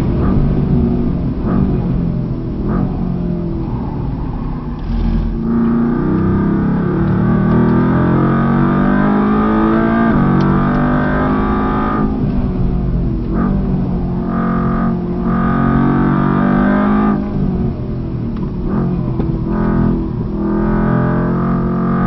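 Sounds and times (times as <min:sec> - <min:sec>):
car engine revving: 0:00.0 - 0:22.0.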